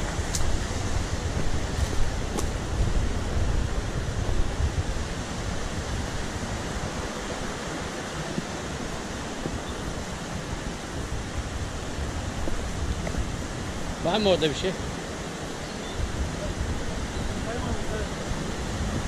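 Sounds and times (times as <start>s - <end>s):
stream rushing over rocks: 0.0s - 19.0s
wind buffeting microphone: 0.0s - 19.0s.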